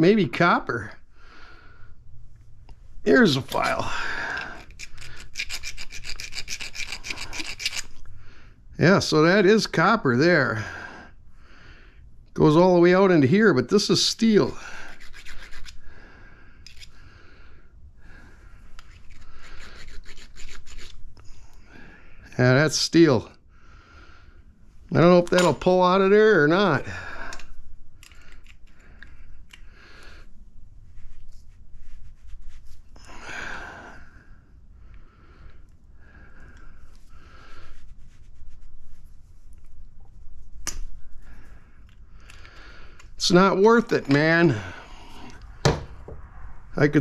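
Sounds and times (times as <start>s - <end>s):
breathing: 1.1s - 2.1s, 3.8s - 5.3s, 8.1s - 8.7s, 10.5s - 12.1s, 14.6s - 20.0s, 21.2s - 22.3s, 23.5s - 24.6s, 26.8s - 30.4s, 33.0s - 37.8s, 41.1s - 43.2s, 44.5s - 45.7s
hand file scraping metal: 4.5s - 8.0s, 14.8s - 15.8s, 18.8s - 21.0s
pliers clicking on metal parts: 27.3s - 29.6s
sharp snap: 40.6s - 40.9s.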